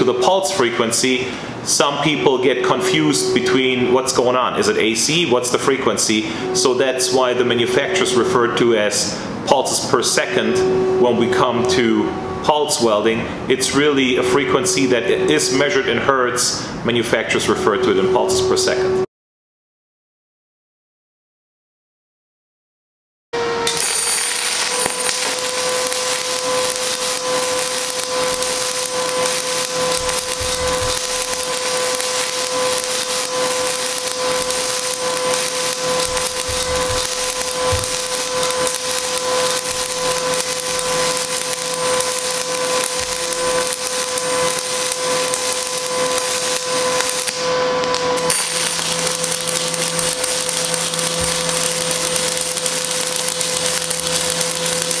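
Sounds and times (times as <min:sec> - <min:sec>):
welding arc crackling and hissing: 0:00.0 - 0:10.3, 0:23.7 - 0:55.0
steady welder whine: 0:00.0 - 0:19.1, 0:23.4 - 0:55.0.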